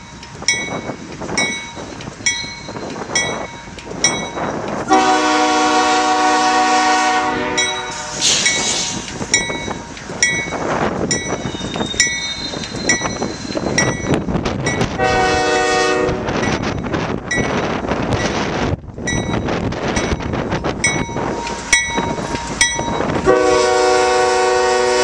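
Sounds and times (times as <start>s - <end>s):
train engines and wheels rumbling: 0.0s - 25.0s
train air horn blasts: 4.9s - 8.4s, 14.9s - 16.4s, 23.2s - 25.0s
bell striking: 19.1s - 23.1s.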